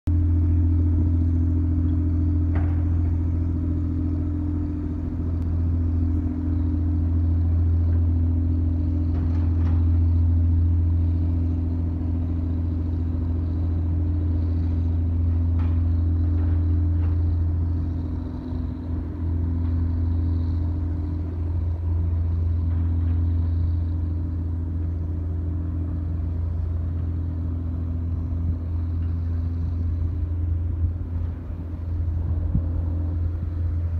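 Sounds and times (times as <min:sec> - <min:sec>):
boat diesel engine drone: 0:00.1 - 0:33.9.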